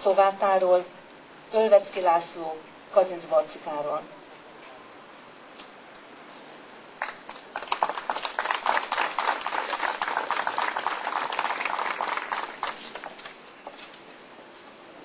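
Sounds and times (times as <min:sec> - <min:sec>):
crowd applauding: 0:07.0 - 0:13.4.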